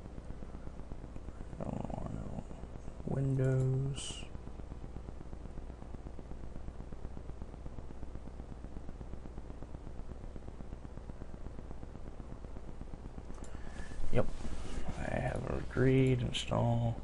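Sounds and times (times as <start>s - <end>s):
low hum: 0.0s - 17.0s
steady hiss: 0.0s - 17.0s
fast dense crackle: 4.0s - 16.8s.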